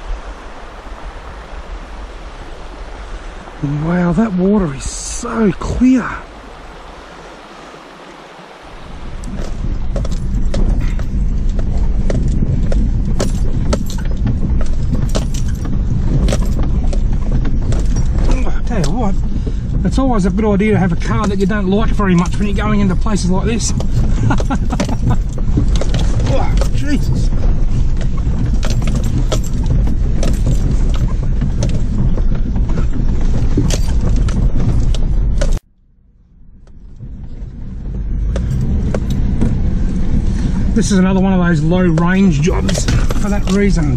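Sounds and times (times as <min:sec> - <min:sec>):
vehicle engine rumble: 0:00.0 - 0:43.9
vehicle interior rattles and knocks: 0:08.8 - 0:35.7, 0:36.6 - 0:43.9.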